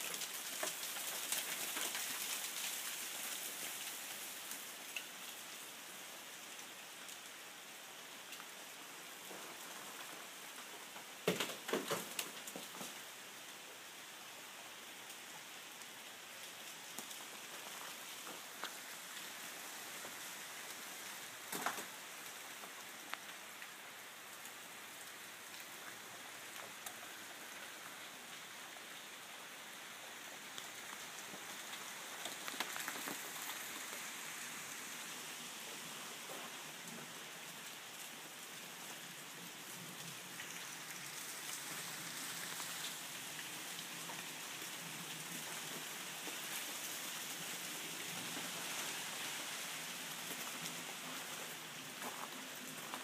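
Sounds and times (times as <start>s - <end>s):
ice and water pattering: 0.0s - 5.4s, 30.2s - 38.3s, 39.7s - 53.0s.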